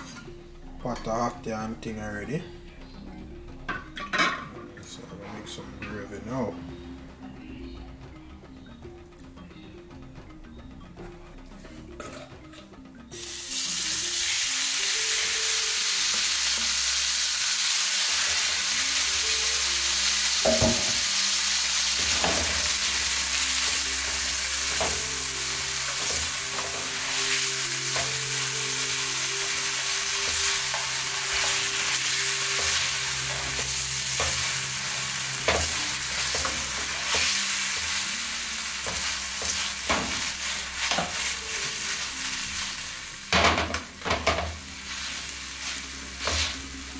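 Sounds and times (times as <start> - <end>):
gravy sizzling in pot: 13.1 - 46.9.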